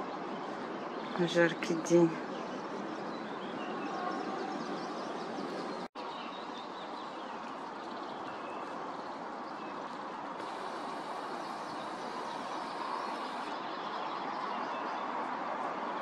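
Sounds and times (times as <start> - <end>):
small birds chirping: 0.4 - 15.2
steady rushing background noise: 8.8 - 16.0.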